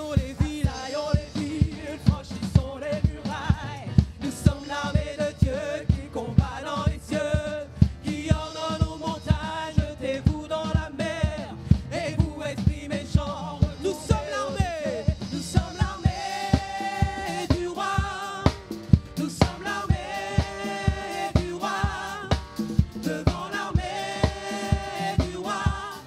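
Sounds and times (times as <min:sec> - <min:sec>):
drum kit beat: 0:00.0 - 0:26.0
vocal group singing: 0:00.0 - 0:26.0
electric bass: 0:13.2 - 0:26.0.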